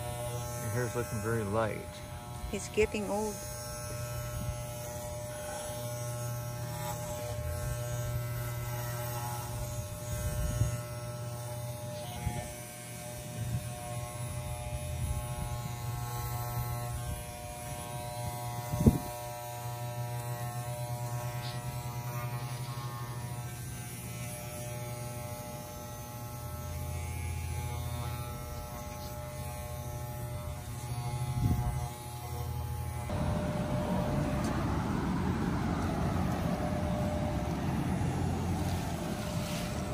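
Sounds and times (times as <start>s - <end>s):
electric hair clippers buzzing: 0.0s - 39.9s.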